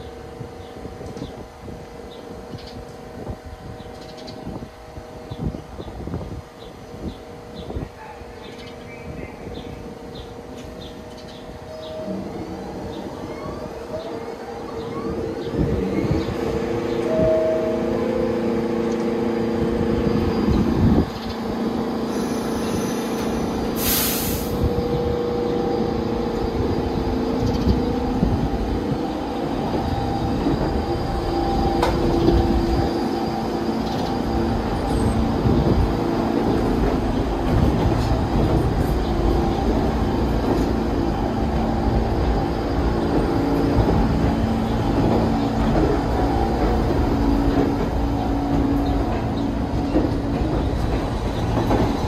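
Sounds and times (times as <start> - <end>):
subway train running on tracks: 0.0 - 52.0
sharp hiss: 22.1 - 24.8.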